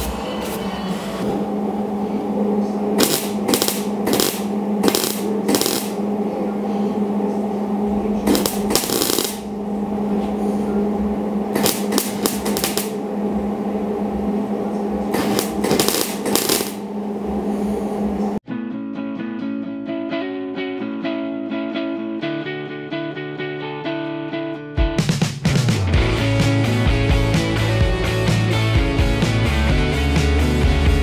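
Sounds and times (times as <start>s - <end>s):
welding arc crackling: 3.0s - 6.0s, 8.2s - 9.5s, 11.5s - 13.0s, 15.1s - 16.9s.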